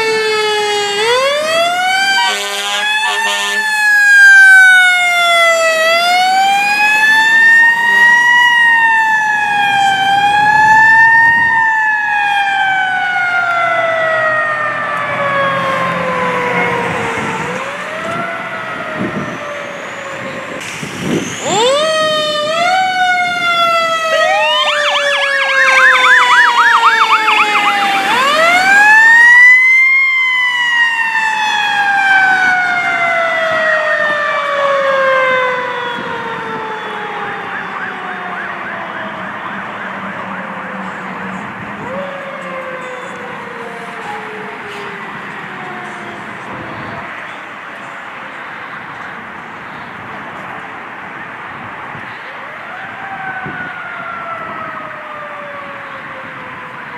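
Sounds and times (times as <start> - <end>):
fast warbling siren yelp: 0.0 - 20.6, 21.2 - 41.2
fire engine siren wailing: 0.0 - 50.1, 51.0 - 56.9.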